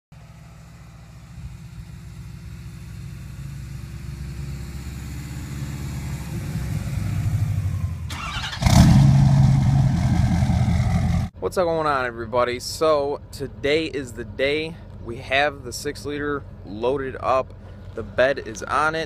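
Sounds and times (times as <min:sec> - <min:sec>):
loud engine sound: 0:00.2 - 0:11.4
car engine rumbling: 0:00.2 - 0:19.0.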